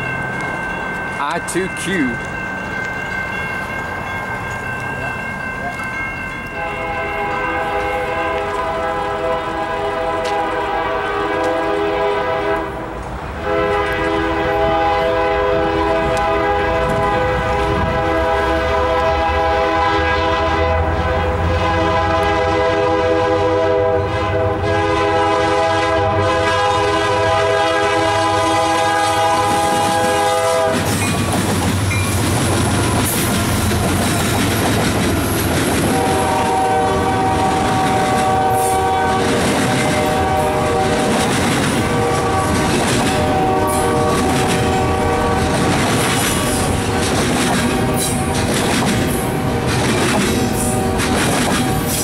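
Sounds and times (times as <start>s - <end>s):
train wheels on rails: 0.0s - 23.2s, 23.8s - 52.0s
locomotive air horn: 6.6s - 12.8s, 13.4s - 30.9s, 35.8s - 41.2s, 41.8s - 45.7s.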